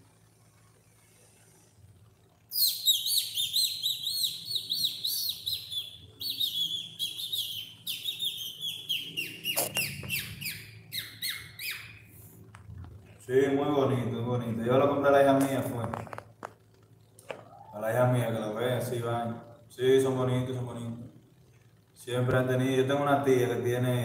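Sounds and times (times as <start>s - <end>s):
budgerigars chirping: 2.6s - 12.0s.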